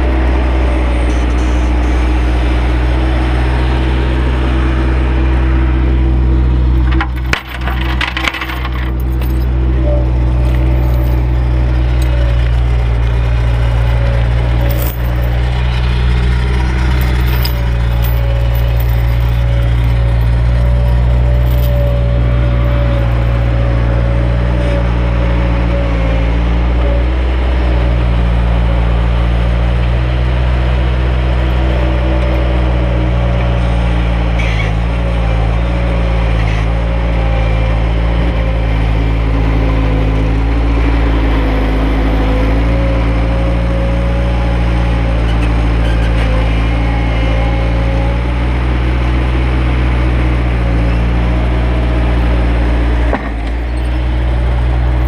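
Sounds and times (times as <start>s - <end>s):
diesel engine running: 0.0s - 55.0s.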